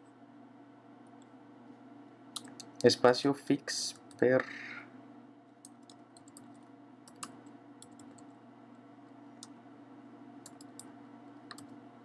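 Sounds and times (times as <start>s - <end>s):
keystrokes on computer keyboard: 5.6s - 8.4s, 10.4s - 11.8s.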